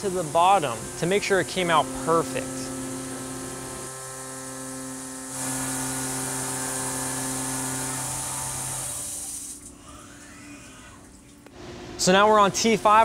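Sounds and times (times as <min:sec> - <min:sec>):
mill spindle whining: 0:00.0 - 0:09.1
coolant mist spray hiss: 0:05.0 - 0:09.6.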